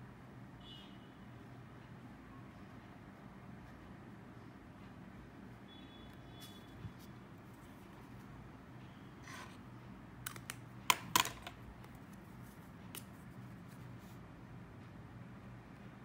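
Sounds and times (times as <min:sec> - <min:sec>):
soft scrape: 0:09.2 - 0:09.6
plastic pens clicking: 0:10.2 - 0:12.2.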